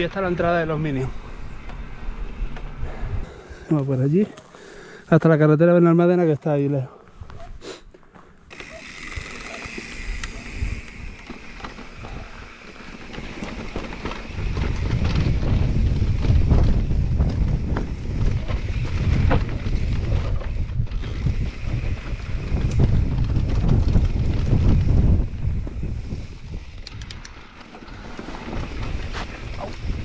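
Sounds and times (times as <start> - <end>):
wind rumbling on microphone: 0.0 - 3.6, 9.0 - 30.0
bike knocking and rattling: 8.1 - 30.0
tyres rolling over loose stones: 8.5 - 26.0, 27.3 - 30.0.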